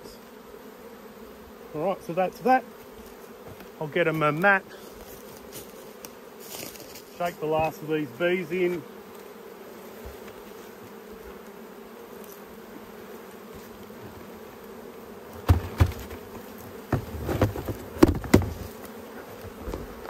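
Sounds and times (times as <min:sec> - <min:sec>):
honeybees buzzing: 0:00.0 - 0:20.0
knocks on wooden box: 0:15.4 - 0:16.2, 0:16.9 - 0:18.6.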